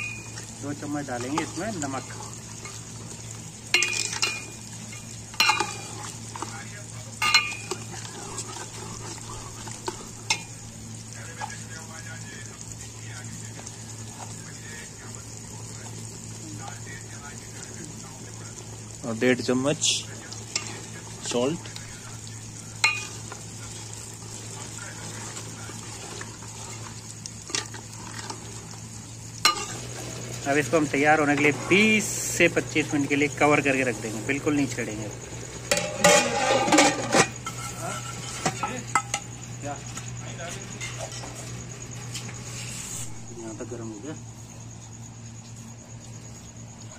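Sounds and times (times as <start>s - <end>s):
food sizzling: 0.0s - 46.9s
ladle scraping pot: 3.7s - 6.5s, 7.2s - 10.5s, 35.7s - 39.3s
ladle clanking against metal pot: 5.3s - 5.8s, 7.2s - 7.8s, 35.7s - 39.2s
ladle clinking against pot: 7.2s - 7.8s.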